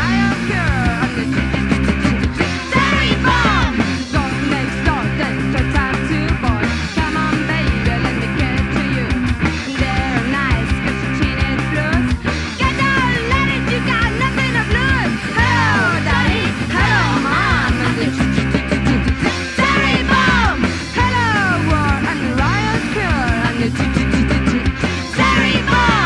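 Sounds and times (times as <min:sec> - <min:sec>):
bass guitar: 0:00.0 - 0:26.0
electric guitars: 0:00.0 - 0:26.0.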